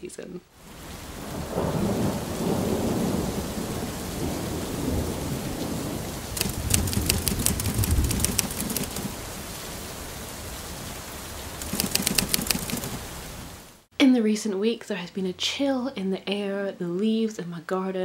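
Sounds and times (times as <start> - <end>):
steady rain: 0.5 - 13.9
rolling thunder: 1.0 - 9.5
typewriter keys clacking: 6.4 - 9.1, 11.6 - 13.0.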